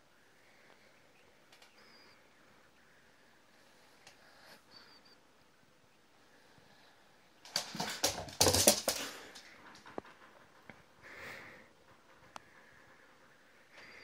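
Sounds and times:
dog claws clattering on wooden floor: 0:07.4 - 0:10.4.

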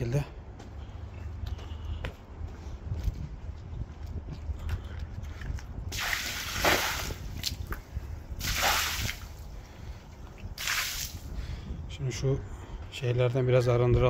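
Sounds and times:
water splashing from a bowl: 0:05.9 - 0:07.8, 0:08.4 - 0:09.4.

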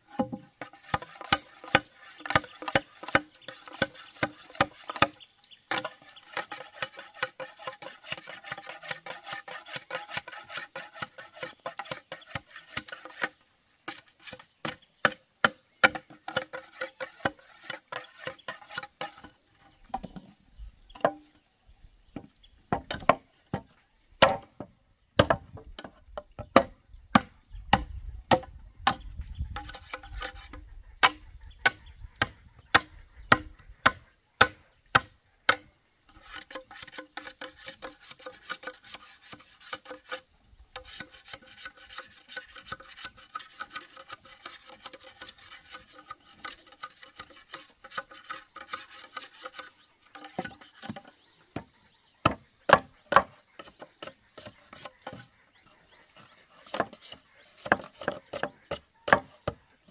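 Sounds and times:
chopping on wooden board: 0:00.2 - 0:07.0, 0:22.7 - 0:24.5, 0:25.2 - 0:25.5, 0:31.0 - 0:35.6, 0:51.6 - 0:53.3, 0:57.6 - 0:59.6.

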